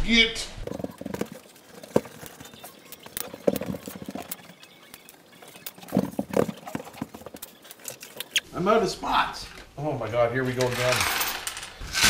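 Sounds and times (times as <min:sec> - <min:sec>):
screws rattling in plastic tray: 0:10.5 - 0:12.0.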